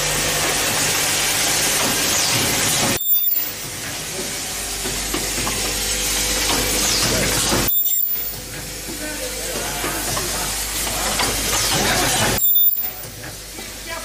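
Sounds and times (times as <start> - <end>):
machine hissing: 0.0 - 14.0
light machine tones: 3.0 - 3.7, 7.7 - 8.4, 12.4 - 13.1.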